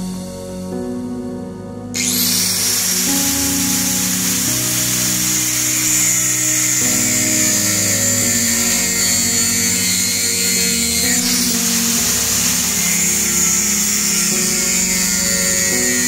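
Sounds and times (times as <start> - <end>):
background music: 0.0 - 16.0
angle grinder cutting metal: 2.0 - 16.0.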